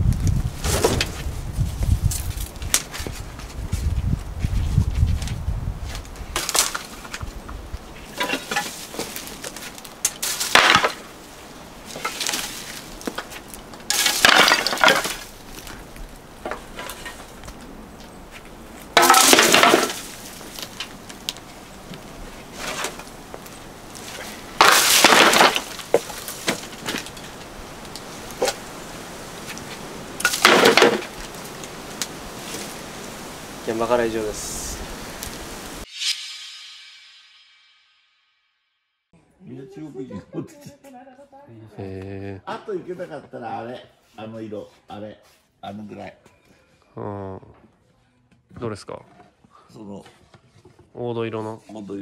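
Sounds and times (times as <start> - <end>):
scrap tin clattering crashes: 8.1 - 9.4, 10.1 - 11.1, 11.9 - 13.3, 13.9 - 15.3, 19.0 - 20.6, 24.0 - 27.4, 30.2 - 31.3.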